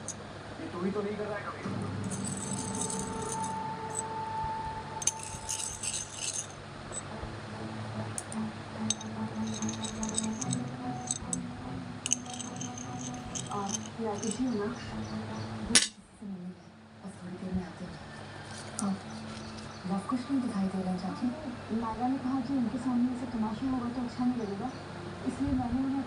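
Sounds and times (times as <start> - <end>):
steady low hum: 1.8 - 14.9
coin clinking in the hand: 2.1 - 4.1, 5.0 - 7.1, 8.9 - 11.4, 12.1 - 14.5.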